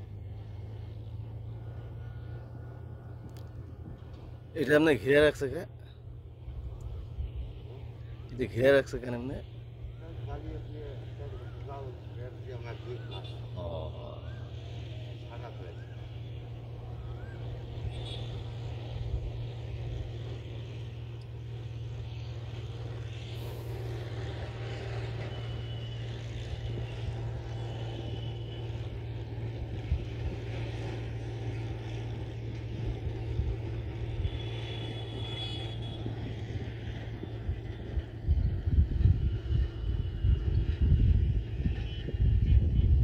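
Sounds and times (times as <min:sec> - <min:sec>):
boat engine droning: 0:00.0 - 0:43.0.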